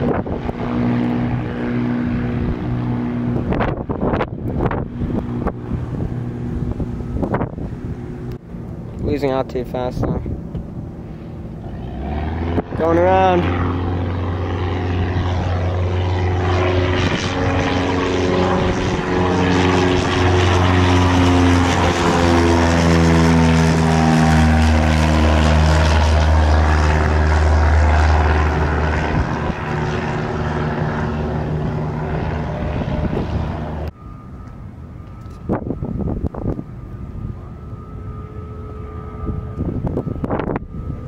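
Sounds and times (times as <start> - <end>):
propeller plane engine drone: 0.0 - 41.0.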